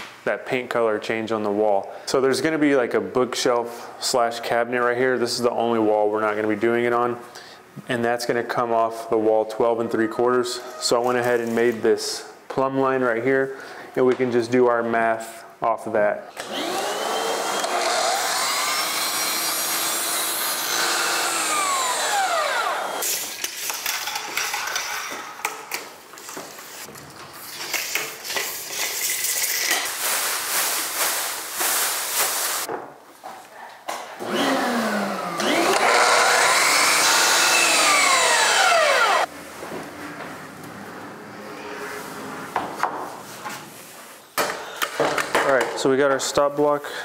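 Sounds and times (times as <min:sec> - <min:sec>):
miter saw cutting: 0:16.4 - 0:23.1, 0:34.2 - 0:39.3.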